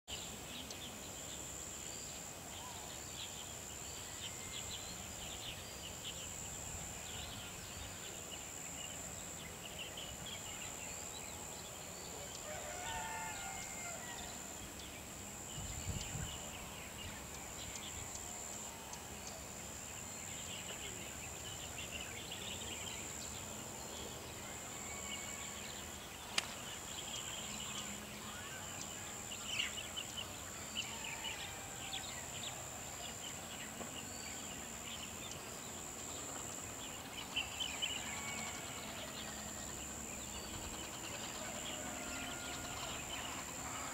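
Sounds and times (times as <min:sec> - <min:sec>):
steady high-pitched whine: 0:00.1 - 0:43.9.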